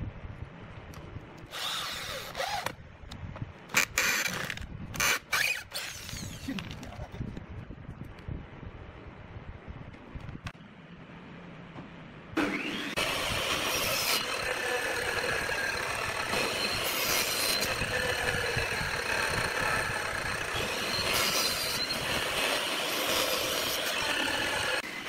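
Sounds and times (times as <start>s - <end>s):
saw blade cutting wood: 1.5s - 2.8s, 3.7s - 6.6s, 12.4s - 25.0s
miter saw whining: 12.4s - 25.0s.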